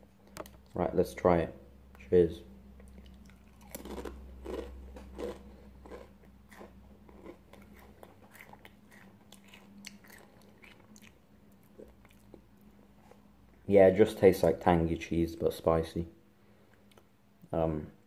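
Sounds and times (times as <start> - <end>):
chip crunching while chewed: 2.8 - 12.4.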